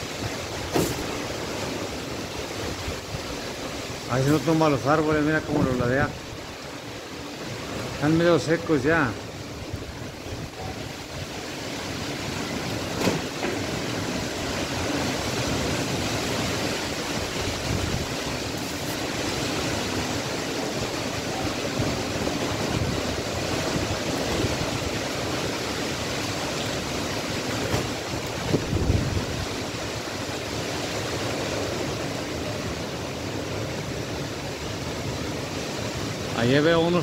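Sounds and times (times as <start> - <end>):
strong wind through trees: 0.0 - 37.0
wind buffeting microphone: 9.4 - 30.5.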